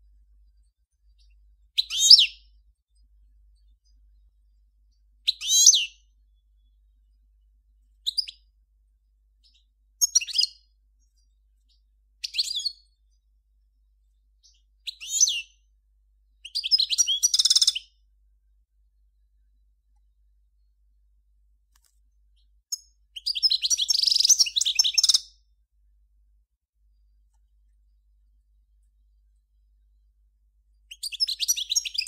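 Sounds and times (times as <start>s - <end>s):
goldfinch twittering song: 0.5s - 3.0s, 3.6s - 6.2s, 8.0s - 8.5s, 9.4s - 13.2s, 14.4s - 15.6s, 16.4s - 18.0s, 22.4s - 25.4s, 30.8s - 32.0s.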